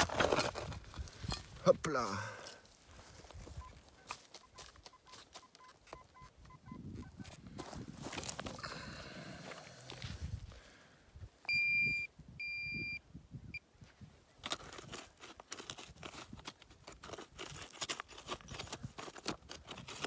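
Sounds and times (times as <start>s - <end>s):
metal detector beeps: 3.6s - 7.3s, 11.5s - 13.6s.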